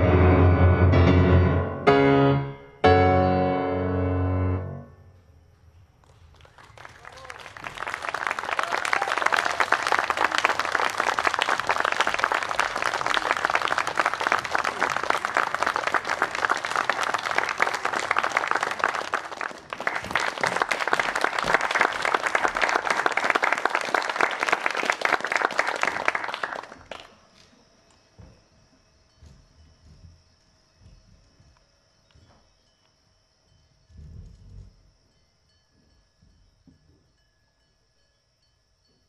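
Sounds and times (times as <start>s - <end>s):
small audience applauding: 6.0s - 27.6s.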